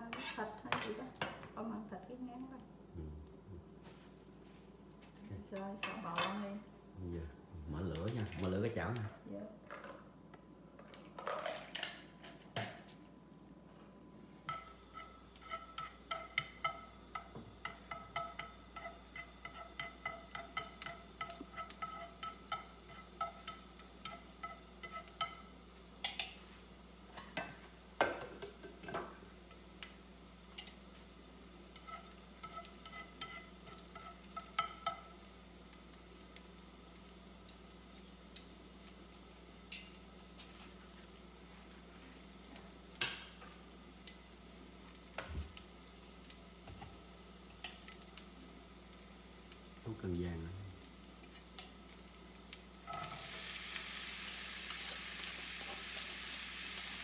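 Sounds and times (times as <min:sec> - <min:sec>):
garlic frying in a pan: 0:14.4 - 0:57.0
chopsticks tapping and scraping pan: 0:14.5 - 0:26.5, 0:31.7 - 0:35.2.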